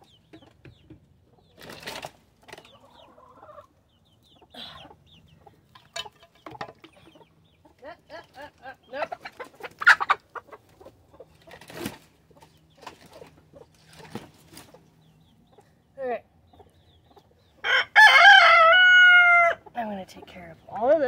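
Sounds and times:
chickens clucking: 0:00.0 - 0:21.0
rooster crowing: 0:17.6 - 0:19.6.

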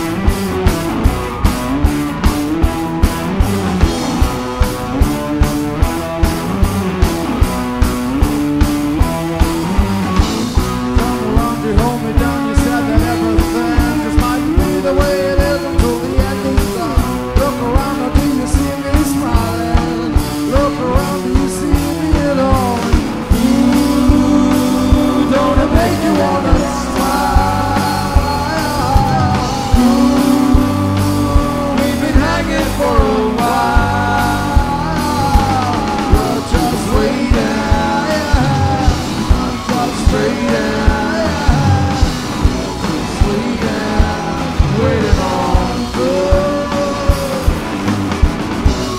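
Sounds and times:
drum kit beat: 0:00.0 - 0:48.9
electric guitars: 0:00.0 - 0:48.9
keyboard: 0:00.0 - 0:48.9
person singing: 0:10.6 - 0:47.9.

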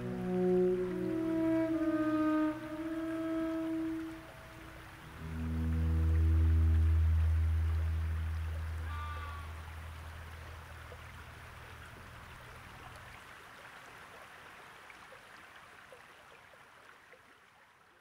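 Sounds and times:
low music drone: 0:00.0 - 0:11.8
flowing stream: 0:00.0 - 0:18.0.

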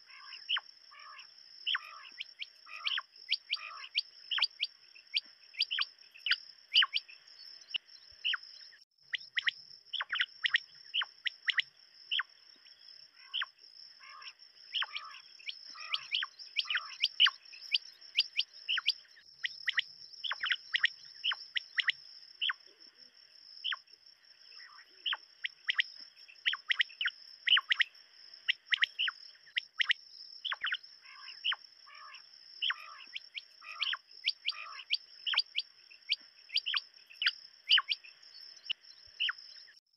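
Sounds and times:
quail calling: 0:00.0 - 0:07.0, 0:13.2 - 0:19.0, 0:19.6 - 0:22.6, 0:24.6 - 0:27.9, 0:28.5 - 0:38.0.

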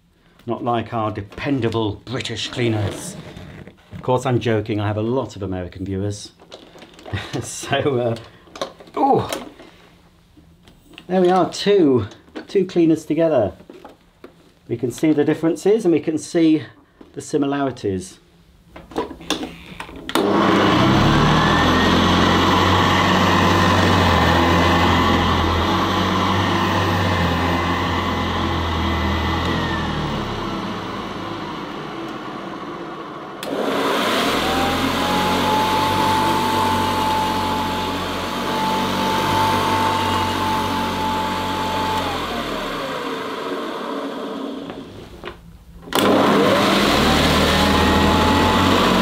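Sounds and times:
vacuum cleaner lower motor tone: 0:19.2 - 0:45.3, 0:45.9 - 0:49.0
vacuum cleaner motor whine: 0:19.2 - 0:45.3, 0:45.9 - 0:49.0.

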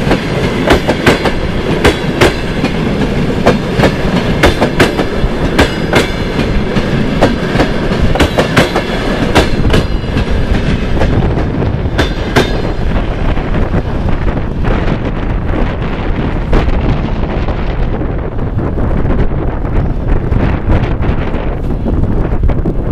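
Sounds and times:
train wheels clacking over rail joints: 0:00.0 - 0:13.9.

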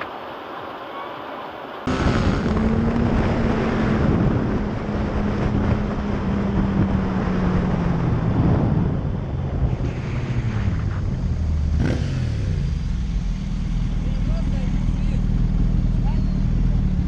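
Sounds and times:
wind buffeting microphone: 0:01.9 - 0:12.8
motorcycle engine: 0:01.9 - 0:17.0.

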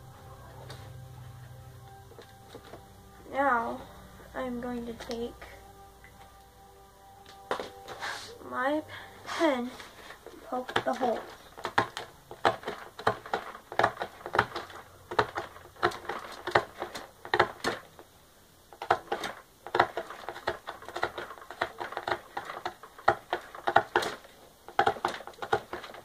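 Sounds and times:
pen punching through cardboard: 0:10.7 - 0:17.8, 0:18.8 - 0:26.0.

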